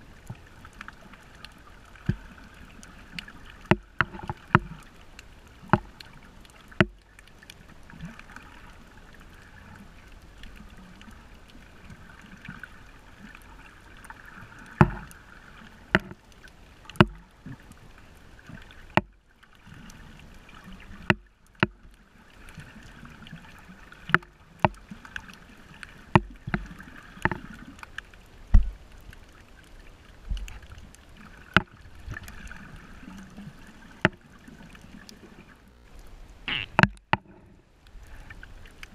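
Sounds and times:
muffled underwater water hiss: 0.0s - 38.9s
sharp clicks and knocks: 15.9s - 16.2s, 26.2s - 26.6s, 36.5s - 37.4s.

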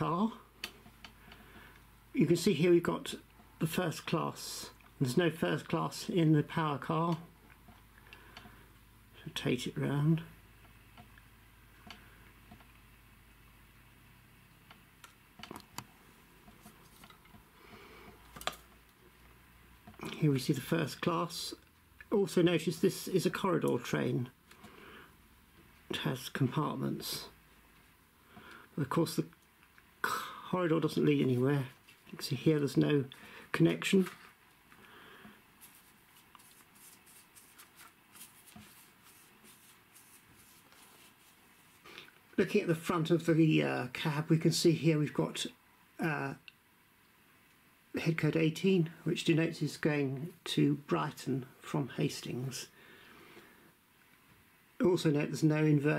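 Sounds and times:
faint clicks and light taps: 0.6s - 1.9s, 7.1s - 8.6s, 10.6s - 12.9s, 14.5s - 20.2s
soft plastic rustling: 33.8s - 42.3s
soft scuffing: 35.6s - 41.8s.

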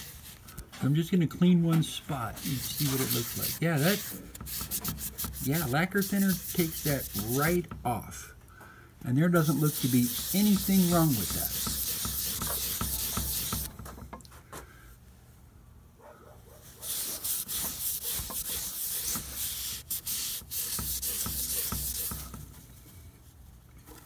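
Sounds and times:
cloth rag rubbing inside metal bore: 0.0s - 0.6s, 1.8s - 7.8s, 9.2s - 13.8s, 16.6s - 22.9s.

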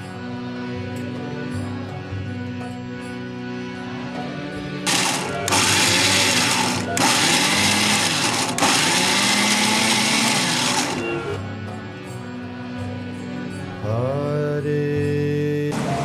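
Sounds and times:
mixer grinder grinding corn: 4.9s - 11.4s.

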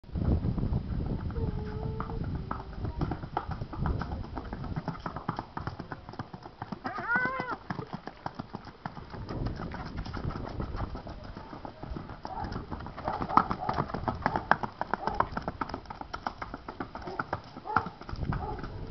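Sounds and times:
horse hoofbeats on gravel: 0.9s - 18.9s.

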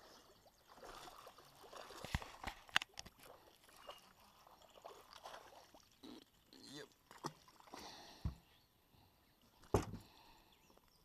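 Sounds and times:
water trickling: 0.0s - 8.3s.

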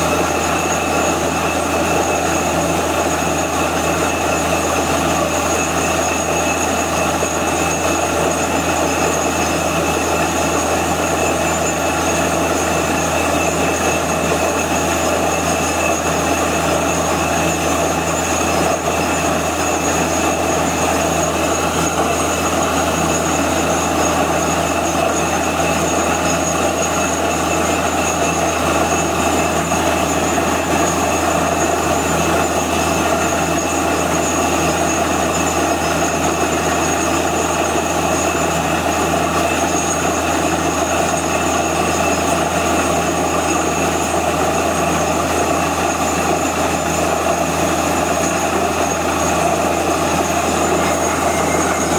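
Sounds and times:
drilling rig running: 0.0s - 51.9s.

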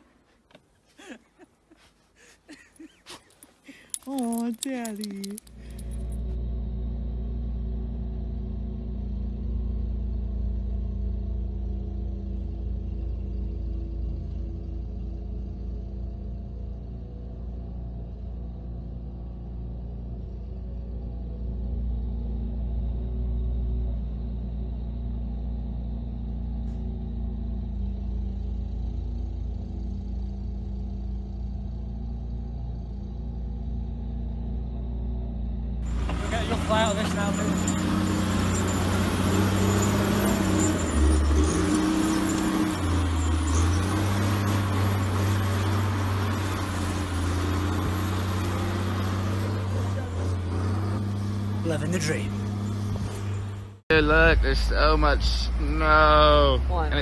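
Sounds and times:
snowblower engine running: 35.8s - 54.2s.

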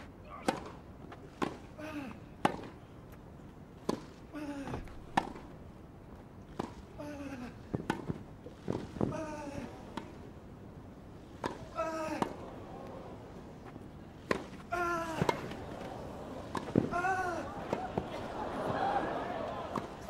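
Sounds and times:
tennis ball hitting racket: 2.4s - 2.8s, 5.1s - 5.4s, 7.8s - 9.1s, 11.3s - 20.0s.

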